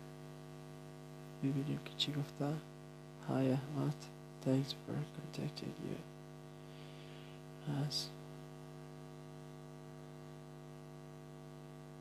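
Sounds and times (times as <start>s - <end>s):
steady electrical hum: 0.0s - 12.0s
person speaking a word: 7.6s - 8.2s.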